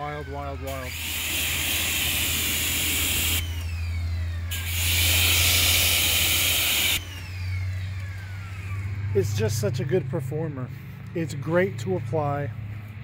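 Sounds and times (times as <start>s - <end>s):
steady low hum: 0.0s - 13.0s
pressure washer spray hissing: 0.7s - 3.6s, 4.5s - 7.1s.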